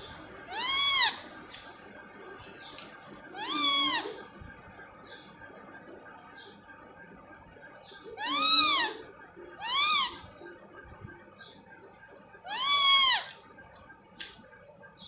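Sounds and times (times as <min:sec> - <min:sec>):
parakeet calling: 0:00.0 - 0:01.6, 0:02.4 - 0:04.4, 0:07.8 - 0:10.6, 0:12.3 - 0:13.5.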